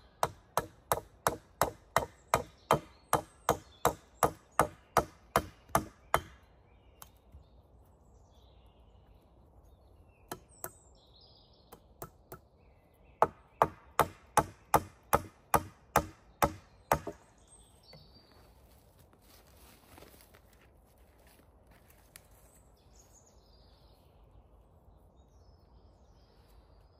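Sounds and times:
wood being chopped: 0.2 - 7.1, 13.2 - 17.3.

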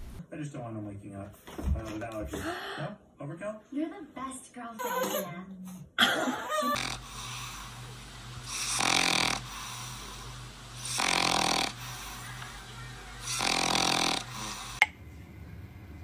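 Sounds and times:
cat snoring: 6.7 - 7.7, 8.5 - 10.1, 10.8 - 12.1, 13.3 - 14.8.

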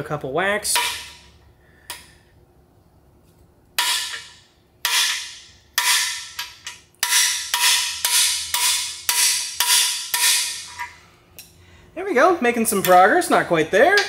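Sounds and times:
hammer striking metal tool: 3.8 - 10.9.

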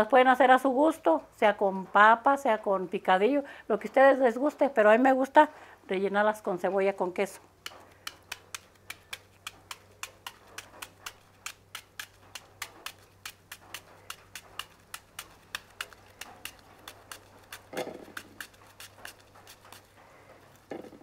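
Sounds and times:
knife dicing onion: 7.6 - 21.0.

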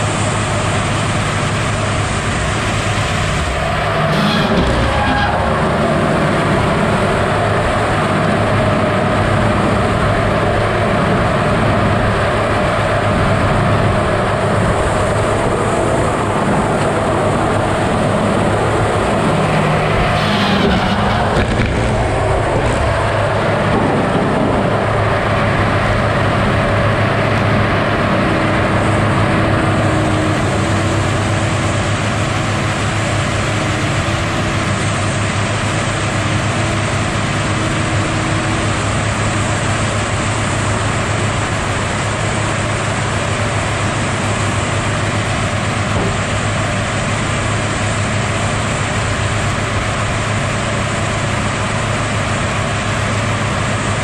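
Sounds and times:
diesel engine and hydraulics: 0.0 - 54.0
circular saw cutting log: 2.5 - 7.2, 19.0 - 24.4.

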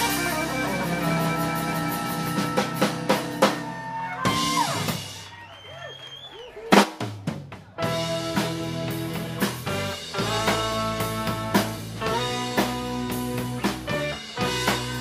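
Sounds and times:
sliding guitar tones: 0.0 - 3.8
blues band playing: 0.0 - 5.5, 6.7 - 15.0.

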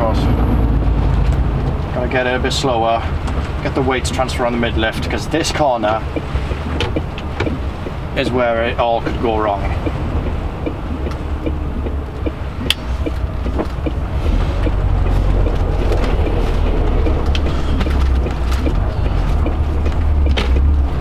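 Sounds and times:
sharp clicks and taps: 6.1 - 8.0, 9.1 - 20.7
truck engine pulling under load: 9.6 - 21.0.

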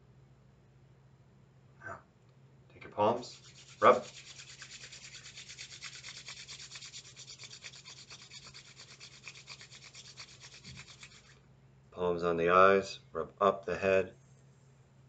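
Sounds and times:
palms rubbing together: 3.0 - 11.4.

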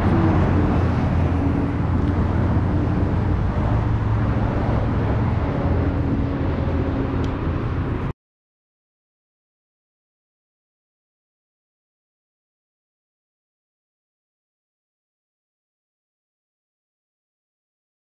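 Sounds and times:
passing cars and engine hum: 0.0 - 8.1.

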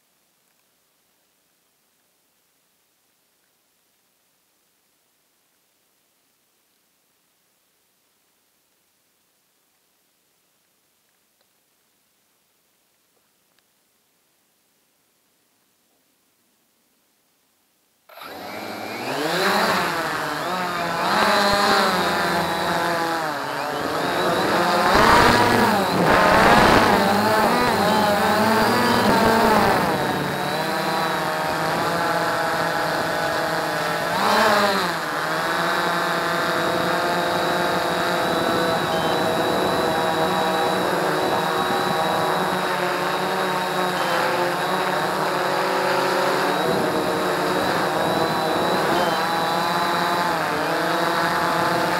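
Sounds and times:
drone propellers whirring: 18.1 - 51.9.

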